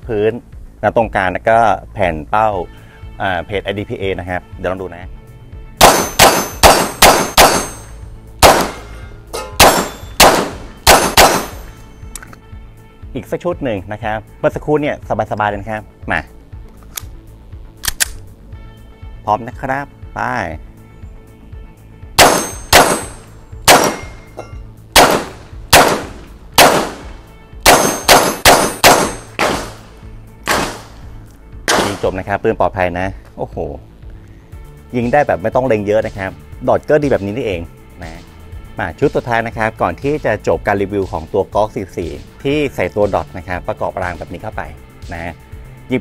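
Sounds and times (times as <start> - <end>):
pistol shots: 5.8 - 9.0, 9.6 - 11.8, 22.2 - 24.3, 25.0 - 31.0, 31.7 - 32.2
steel targets clanging: 5.8 - 11.9, 22.2 - 24.6, 27.7 - 29.9
steel plates clanging: 8.7 - 10.2.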